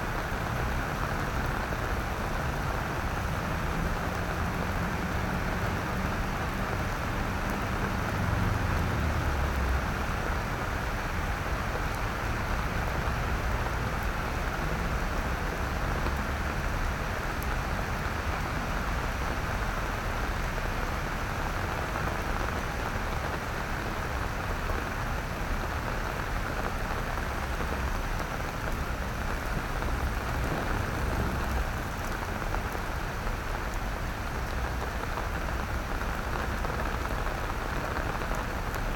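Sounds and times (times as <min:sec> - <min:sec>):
rain on wet paving: 0:00.0 - 0:38.9.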